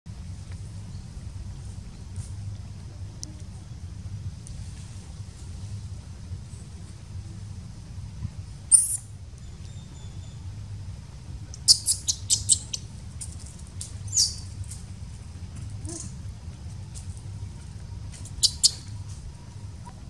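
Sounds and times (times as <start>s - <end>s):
steady low hum: 0.1s - 20.0s
baby monkey squeaking: 8.7s - 9.0s, 11.6s - 12.9s, 14.1s - 14.5s, 18.2s - 18.9s.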